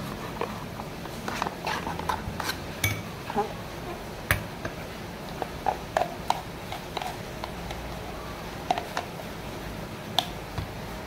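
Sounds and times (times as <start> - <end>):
metal spoon tapping bowls: 2.8 - 3.1.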